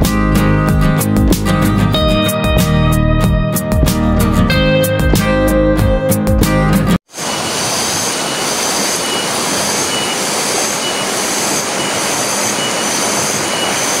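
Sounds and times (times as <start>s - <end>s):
stream rushing over rocks: 7.1s - 13.8s.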